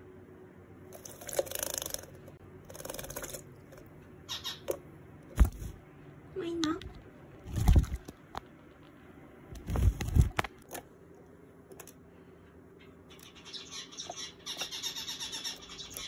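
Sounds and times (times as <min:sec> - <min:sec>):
bird fluttering and splashing in water: 0:00.9 - 0:03.9, 0:07.4 - 0:08.2.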